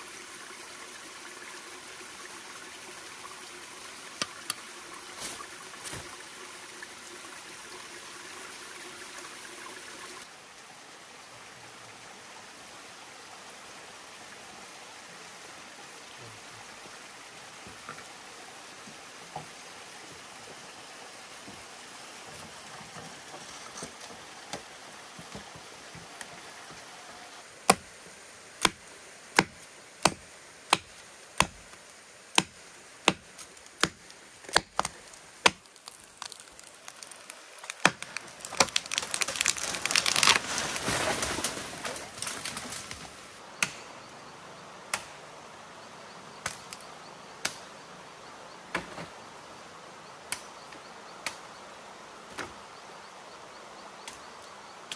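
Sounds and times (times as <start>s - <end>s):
water running in channel: 0.0s - 43.4s
machete chopping tree trunk: 27.6s - 27.9s, 28.6s - 28.8s, 29.4s - 31.6s, 32.3s - 36.4s, 37.6s - 39.6s, 43.6s - 43.8s, 44.9s - 45.2s.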